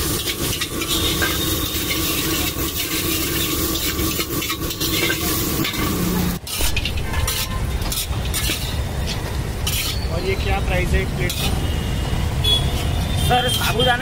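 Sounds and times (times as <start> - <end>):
metal spatula scraping a pan: 0.0 - 10.5, 11.2 - 11.6
food sizzling in a pan: 0.0 - 11.6.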